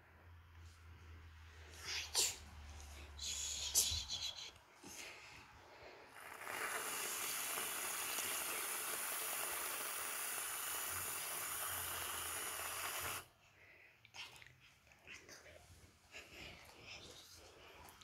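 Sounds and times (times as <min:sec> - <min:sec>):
aerosol can hissing: 0:06.2 - 0:13.3.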